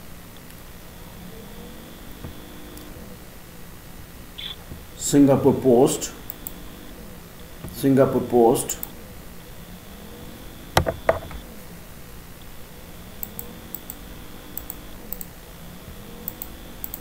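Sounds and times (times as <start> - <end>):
louder knocks: 10.8 - 11.4.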